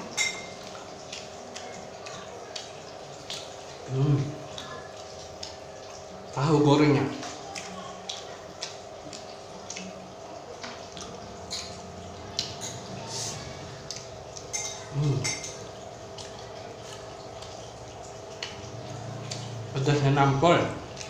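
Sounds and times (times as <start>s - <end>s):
wet chewing and lip-smacking: 0.0s - 6.4s, 7.2s - 19.7s.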